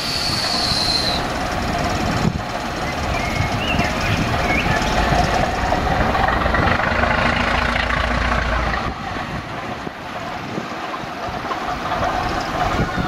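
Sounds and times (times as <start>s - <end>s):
locomotive engine running: 0.0s - 13.0s
deep low rumble: 2.1s - 9.9s.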